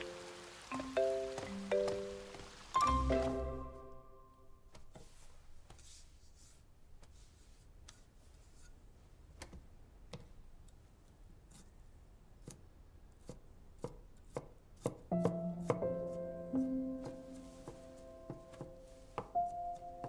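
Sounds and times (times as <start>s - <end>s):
background music: 0.0s - 4.6s, 15.2s - 20.0s.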